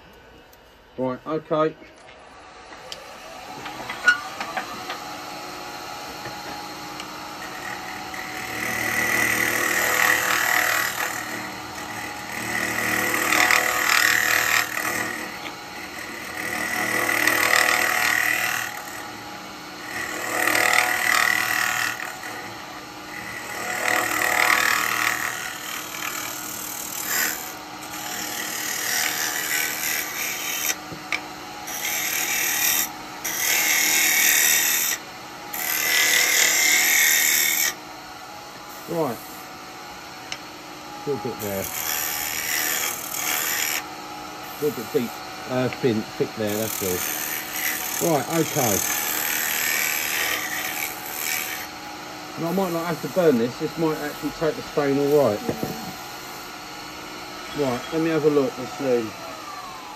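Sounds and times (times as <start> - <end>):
turning tool cutting wood: 1.5 - 37.8, 38.5 - 59.9
wood lathe running: 1.5 - 37.8, 38.5 - 59.9.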